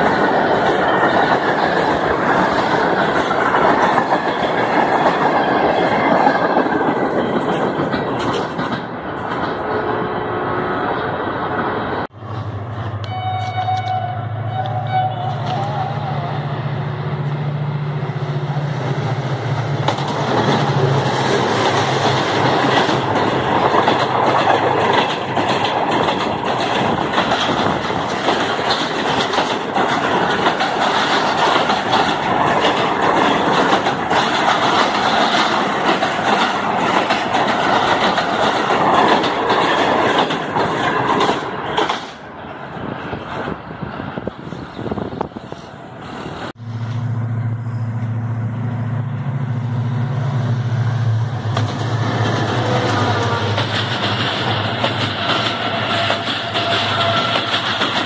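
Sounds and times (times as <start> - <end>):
wheels clacking over rail joints: 0.0 - 10.0, 19.2 - 43.6, 51.3 - 58.0
passenger train passing: 0.0 - 58.0.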